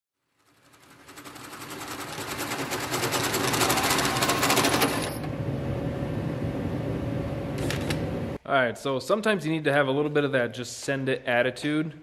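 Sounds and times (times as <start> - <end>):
drill running steadily: 1.0 - 5.1.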